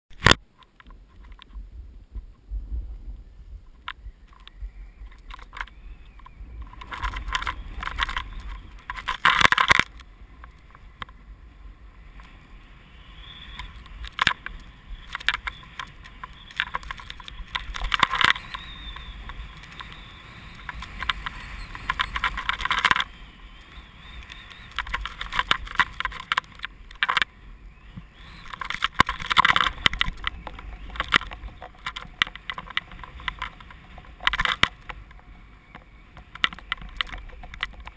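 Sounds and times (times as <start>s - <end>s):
wind rumble on microphone: 0.2s - 37.9s
skis scraping through snow: 10.2s - 37.9s.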